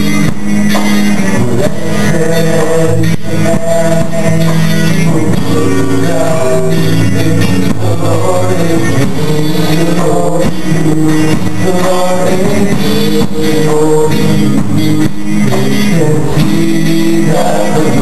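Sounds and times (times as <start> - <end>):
live band playing: 0.0 - 18.0
male voices singing gospel song: 1.2 - 18.0.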